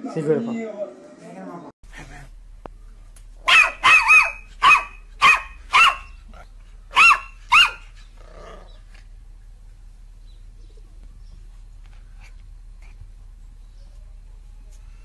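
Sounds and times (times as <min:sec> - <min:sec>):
puppy yapping: 0:03.4 - 0:08.8.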